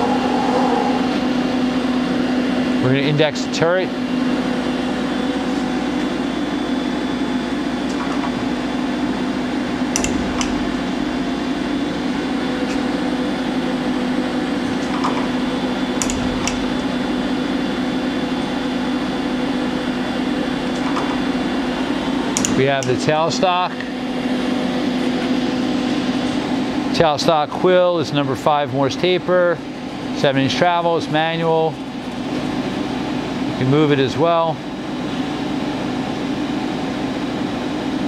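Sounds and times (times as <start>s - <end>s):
lathe humming: 4.9s - 26.3s
tool turret clicks and thud: 9.9s - 11.3s, 16.0s - 17.2s, 22.3s - 22.6s.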